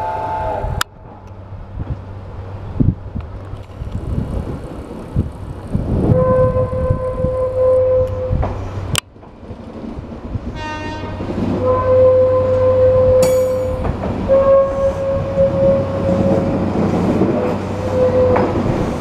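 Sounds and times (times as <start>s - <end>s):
train wheels rumbling on rails: 0.0s - 19.0s
sharp clack: 13.2s - 14.0s.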